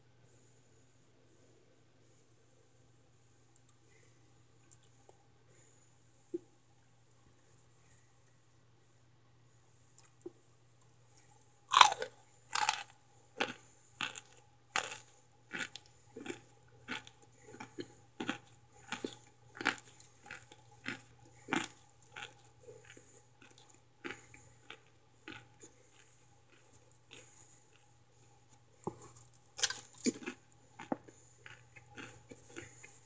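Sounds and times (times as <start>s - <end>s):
person crunching hard food: 11.7s - 27.9s, 28.9s - 33.0s.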